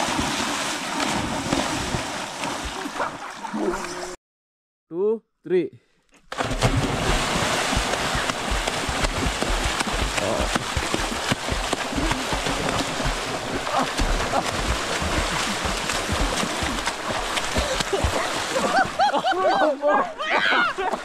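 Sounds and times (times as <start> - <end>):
pool water splashing: 0.0 - 4.2, 6.3 - 21.0
low thumps in water: 6.3 - 18.9.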